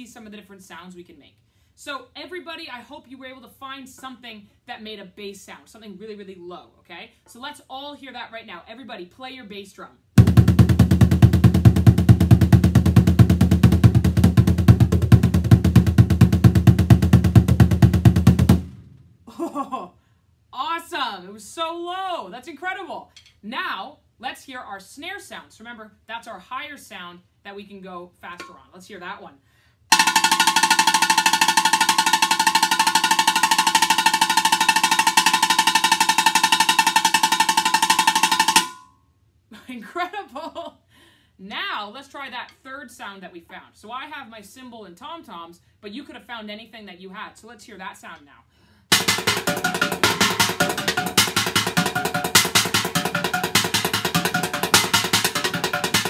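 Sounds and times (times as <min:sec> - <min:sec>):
bucket drum roll: 0:10.2 - 0:19.0, 0:29.9 - 0:38.8, 0:48.9 - 0:56.0.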